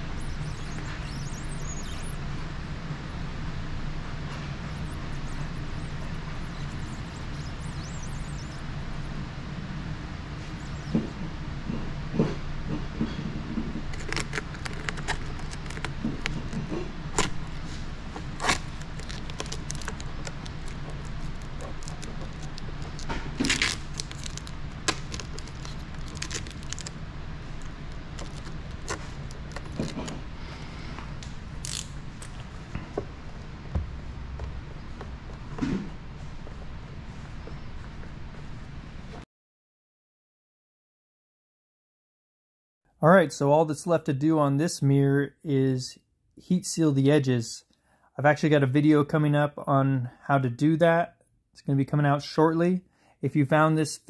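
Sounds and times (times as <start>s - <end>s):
steady low hum: 0.0s - 39.2s.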